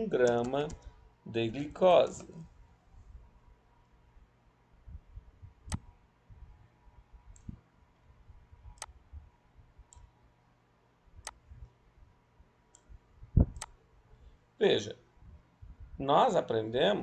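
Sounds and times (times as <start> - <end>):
computer mouse clicking: 0.2 - 0.9, 13.6 - 13.8.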